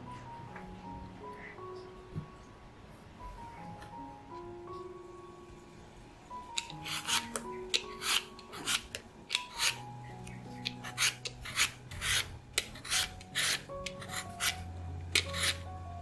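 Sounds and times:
faint background music: 0.0 - 16.0
vegetable peeler scraping potato: 6.6 - 15.7.

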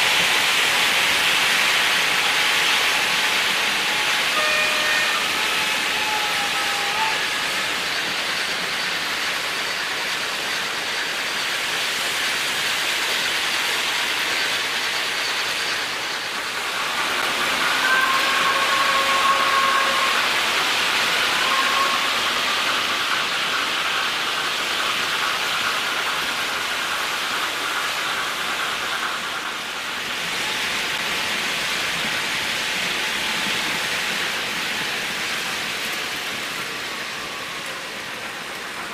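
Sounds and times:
model trains rolling on track: 0.0 - 38.9
high wheel squeals: 2.0 - 9.3, 15.0 - 22.9, 36.5 - 38.6.

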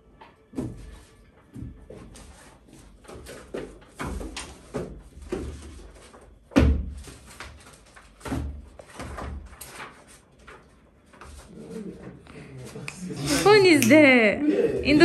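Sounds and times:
paper rustling: 8.8 - 12.8.

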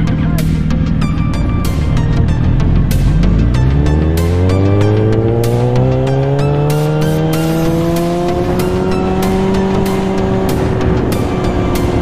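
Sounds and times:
background music with a beat: 0.0 - 12.0
motorcycle engine accelerating: 0.0 - 12.0
wind rush: 7.2 - 12.0.

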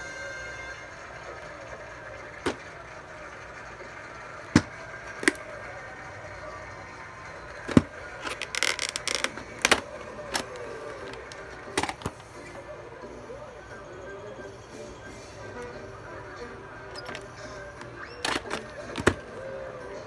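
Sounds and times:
plastic rattling clatter: 7.6 - 12.2, 16.9 - 19.3
plastic case clicks and taps: 18.2 - 19.2.

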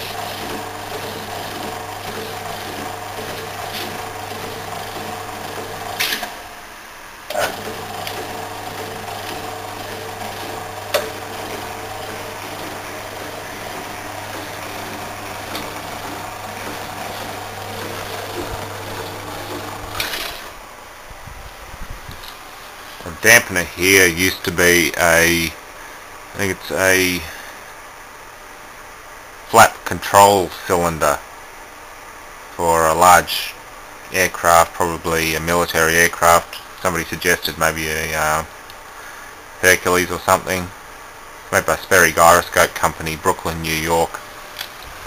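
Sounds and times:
power hacksaw motor humming: 0.0 - 6.6, 7.3 - 20.6.

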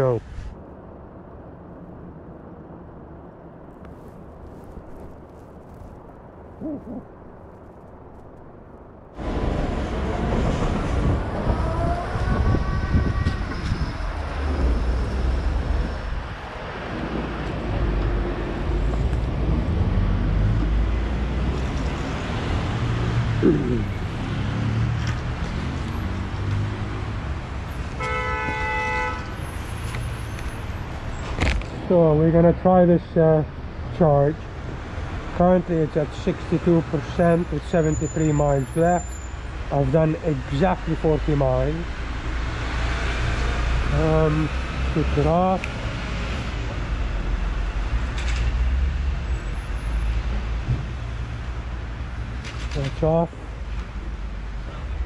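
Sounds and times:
traffic and road noise: 0.0 - 55.0
vehicle horn: 28.0 - 29.3.

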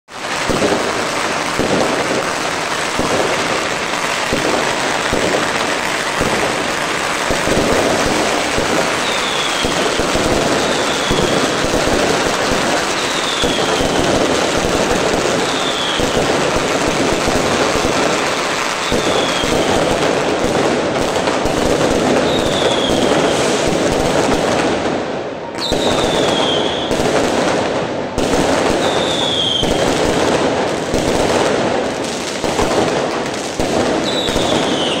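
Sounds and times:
fireworks crackling and banging: 0.1 - 35.0
high falling whistles: 9.0 - 9.9.

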